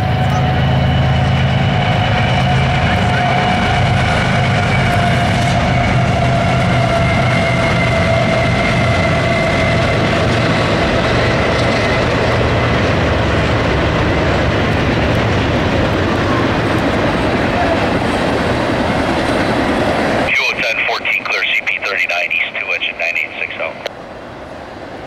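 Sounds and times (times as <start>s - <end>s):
diesel locomotive engines passing: 0.0s - 25.0s.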